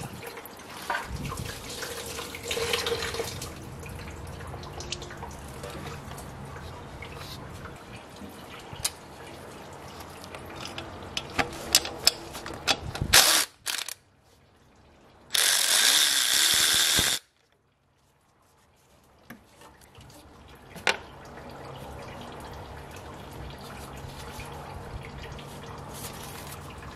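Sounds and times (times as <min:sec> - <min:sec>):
light clicks and knocks of parts: 0:09.7 - 0:13.1
electric ratchet spinning: 0:13.1 - 0:14.0, 0:15.3 - 0:17.3.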